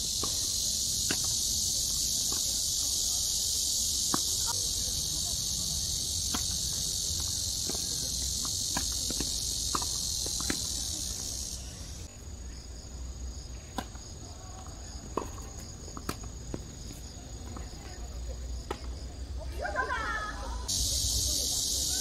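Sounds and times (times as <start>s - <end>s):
cicadas buzzing: 0.0s - 22.0s
tennis balls struck by rackets: 0.1s - 3.0s, 3.9s - 4.8s, 5.8s - 12.0s, 13.6s - 17.8s.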